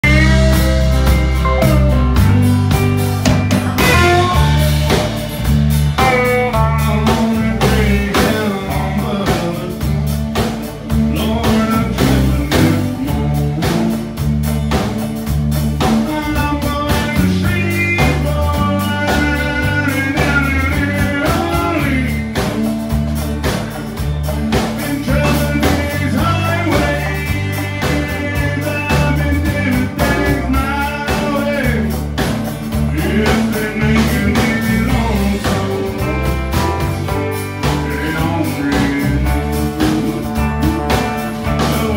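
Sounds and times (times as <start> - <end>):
live country band: 0.0 - 41.9.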